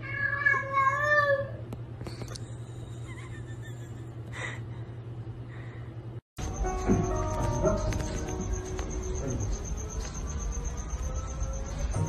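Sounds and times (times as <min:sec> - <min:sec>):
cat meowing: 0:00.0 - 0:01.6
low hum: 0:02.1 - 0:12.0.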